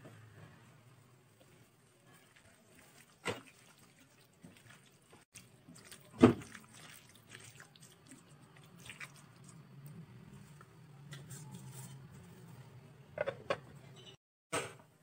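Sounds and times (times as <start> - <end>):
hand squishing wet food: 1.4 - 9.9.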